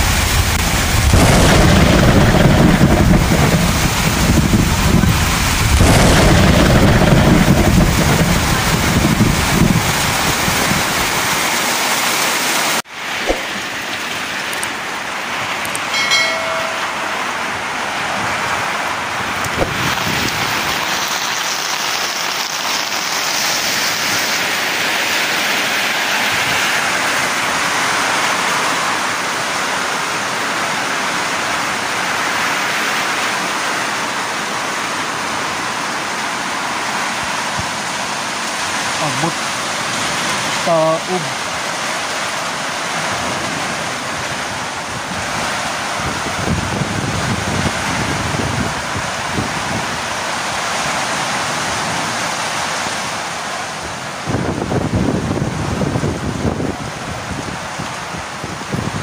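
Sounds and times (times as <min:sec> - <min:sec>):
heavy rain hissing: 0:00.0 - 0:15.7, 0:16.9 - 0:59.0
short beep: 0:16.0 - 0:17.3.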